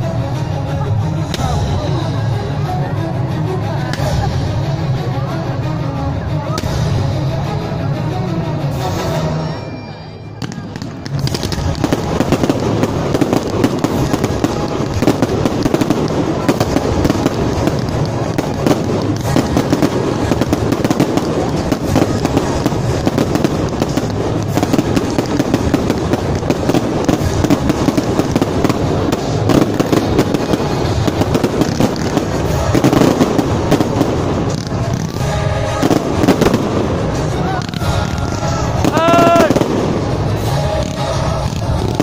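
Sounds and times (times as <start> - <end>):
fireworks crackling and popping: 10.4 - 42.0.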